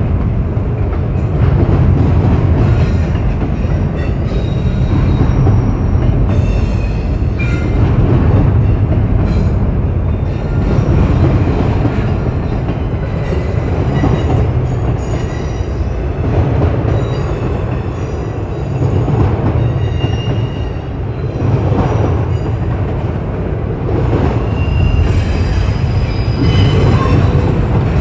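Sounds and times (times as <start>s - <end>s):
train wheels rumbling on rail: 0.0s - 28.0s
high-pitched wheel squeals: 24.6s - 27.5s.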